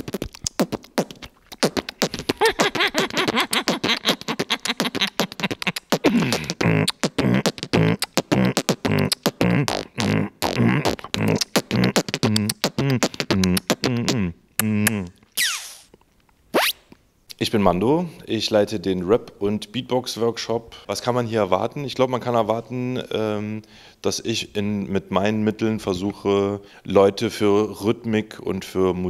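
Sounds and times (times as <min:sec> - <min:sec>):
beatboxing kick and snare clicks: 0:00.0 - 0:15.8.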